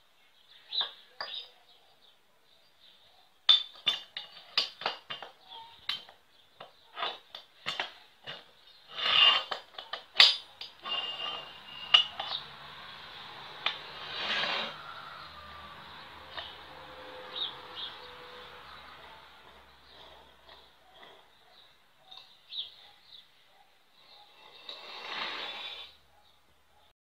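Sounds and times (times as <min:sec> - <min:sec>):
metal-on-metal scrapes: 0:06.7 - 0:15.6, 0:16.2 - 0:22.3, 0:24.2 - 0:26.0
steel gears clinking: 0:06.9 - 0:14.9.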